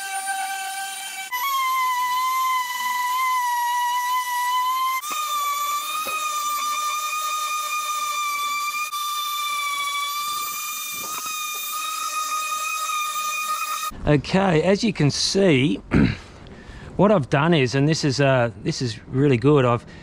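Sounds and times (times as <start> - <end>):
orbital sander whining: 0.0 - 14.0.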